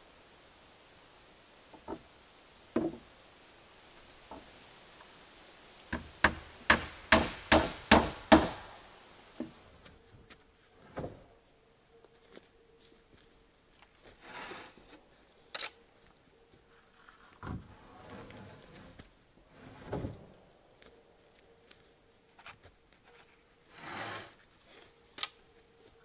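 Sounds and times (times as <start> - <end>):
hammer driving nail into wood: 6.3 - 8.6.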